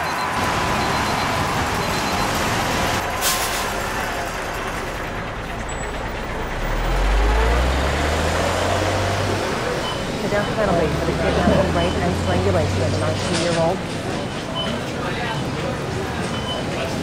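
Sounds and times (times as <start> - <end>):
heavy vehicle engine rumbling: 0.0 - 17.0
street traffic: 0.0 - 17.0
air brakes hissing: 3.1 - 4.0.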